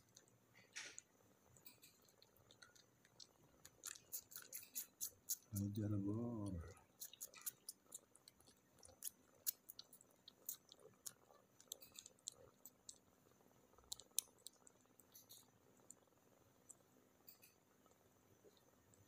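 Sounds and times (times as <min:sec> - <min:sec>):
kittens suckling clicks and smacks: 0:00.0 - 0:19.0.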